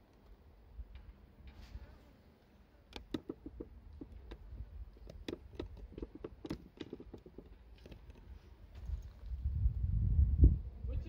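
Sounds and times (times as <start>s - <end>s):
light taps and knocks: 2.9s - 8.9s.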